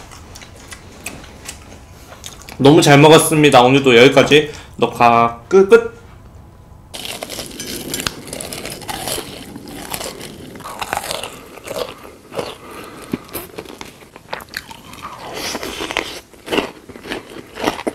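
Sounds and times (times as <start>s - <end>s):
crisp crunching bites and chewing: 7.0s - 17.9s.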